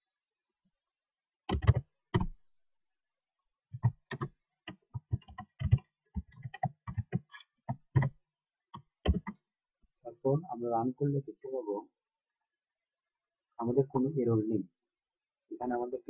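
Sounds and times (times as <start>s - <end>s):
computer keyboard typing: 1.5s - 2.3s, 3.8s - 8.2s, 8.8s - 9.4s.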